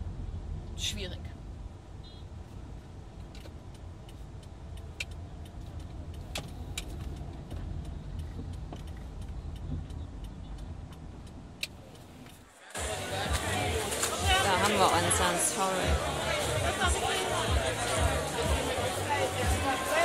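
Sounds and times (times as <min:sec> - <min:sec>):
car engine and road rumble: 0:00.0 - 0:20.0.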